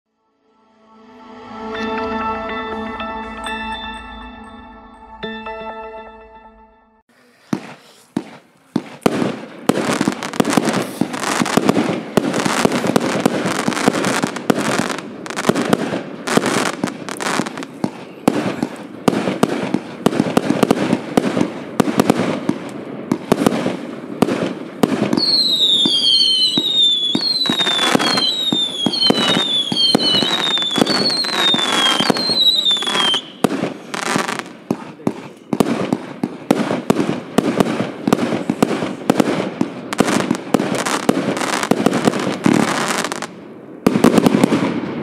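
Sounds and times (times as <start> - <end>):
firework volley of shots: 7.2 - 45.0
falling firework whistles: 24.8 - 34.5.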